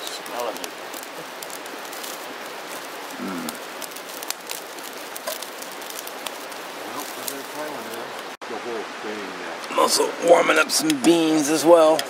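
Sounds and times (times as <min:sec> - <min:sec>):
rain patter: 0:00.0 - 0:12.0.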